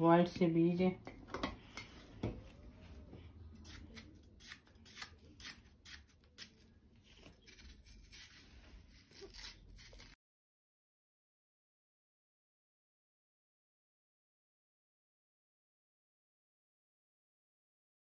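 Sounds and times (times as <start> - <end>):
knife slicing watermelon: 3.6 - 10.2.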